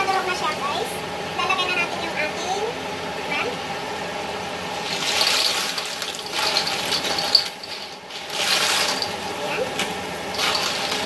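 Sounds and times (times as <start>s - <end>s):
clams clattering in a wok: 4.8s - 11.0s.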